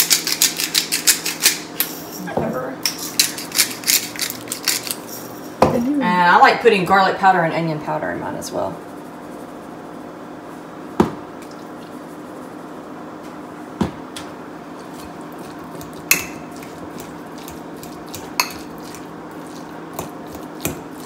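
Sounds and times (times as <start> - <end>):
metal spoon clinking in glass bowl: 18.4 - 18.7.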